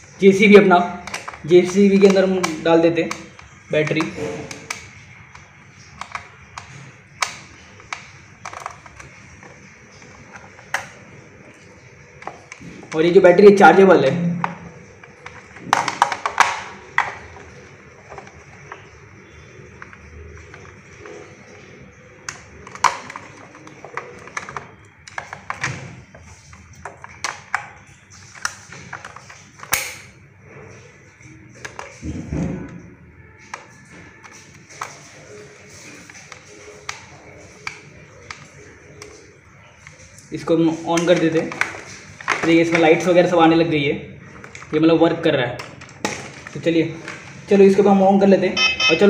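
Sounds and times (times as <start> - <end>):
plastic clicks and taps: 1.0 - 11.0, 14.4 - 18.9.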